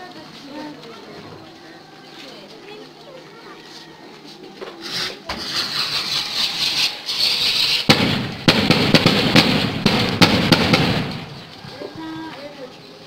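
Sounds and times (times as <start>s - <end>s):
firecracker hiss: 4.8s - 11.4s
firecracker bang: 5.3s - 11.5s
rapid firecracker pops: 7.2s - 11.4s.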